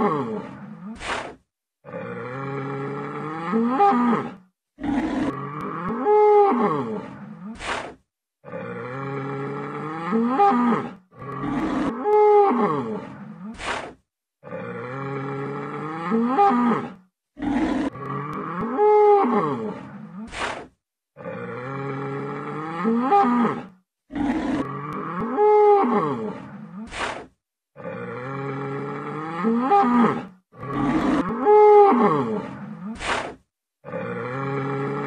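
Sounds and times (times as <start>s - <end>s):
bull bellowing: 27.8s - 33.2s.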